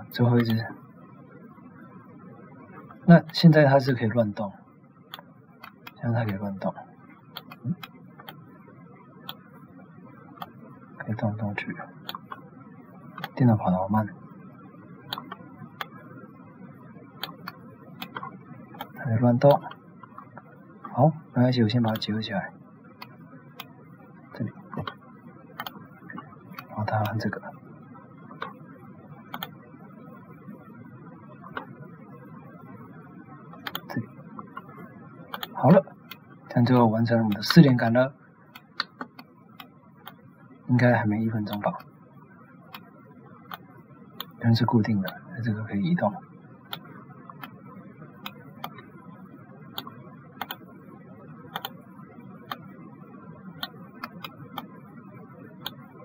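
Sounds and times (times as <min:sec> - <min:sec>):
low steady hiss: 0:00.0 - 0:56.0
computer mouse clicks: 0:05.1 - 0:06.4, 0:07.3 - 0:08.4, 0:09.2 - 0:09.4, 0:10.4 - 0:10.6, 0:12.0 - 0:12.4, 0:13.1 - 0:13.4, 0:15.1 - 0:16.0, 0:17.2 - 0:21.0, 0:25.6 - 0:27.3, 0:28.3 - 0:28.6, 0:29.3 - 0:29.6, 0:31.5 - 0:31.8, 0:33.5 - 0:37.7, 0:38.5 - 0:40.2, 0:42.7 - 0:42.9, 0:43.5 - 0:44.4, 0:46.7 - 0:47.6, 0:48.2 - 0:48.9, 0:49.7 - 0:50.7, 0:51.5 - 0:51.8, 0:52.4 - 0:52.7, 0:53.6 - 0:54.8, 0:55.6 - 0:55.8.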